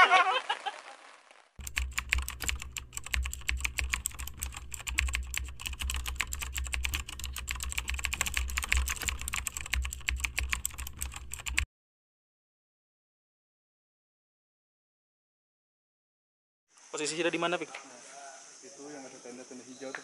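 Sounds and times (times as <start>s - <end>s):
keyboard keystroke clicks: 1.6s - 11.6s.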